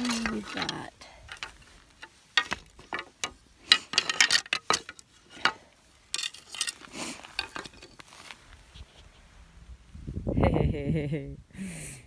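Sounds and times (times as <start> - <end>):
antlers clacking on rock: 0.0 - 8.1.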